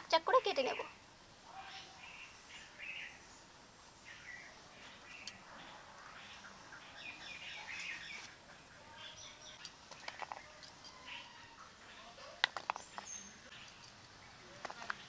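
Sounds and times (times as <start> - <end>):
small birds chirping: 0.0 - 15.0
sharp clicks: 9.6 - 10.5, 12.4 - 14.0.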